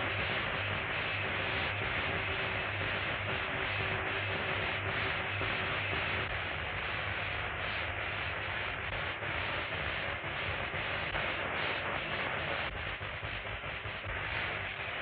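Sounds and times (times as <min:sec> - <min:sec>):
electrical machine hissing and buzzing: 0:00.0 - 0:15.0.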